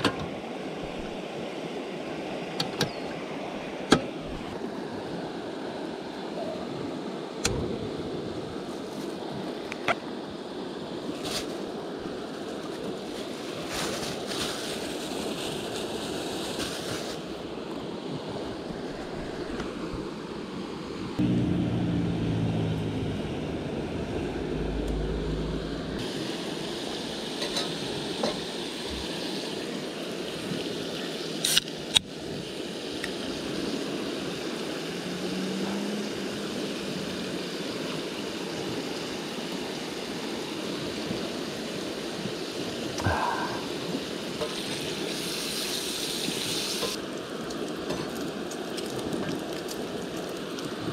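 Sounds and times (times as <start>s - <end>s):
river flowing: 0.0s - 7.4s, 17.4s - 50.9s
low hum: 21.2s - 26.0s.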